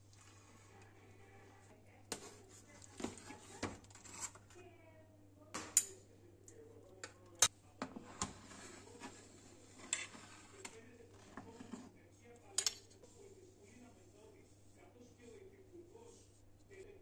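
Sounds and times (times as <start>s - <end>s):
cutlery clinking against dishes: 12.5s - 13.0s.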